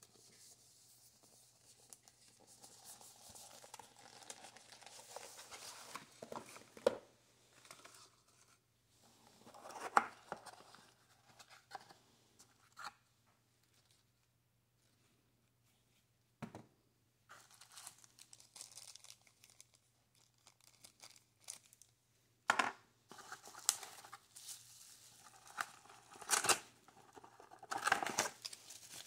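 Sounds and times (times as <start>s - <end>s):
paper and card rustling: 0.1s - 6.9s, 17.3s - 21.8s, 23.1s - 29.0s.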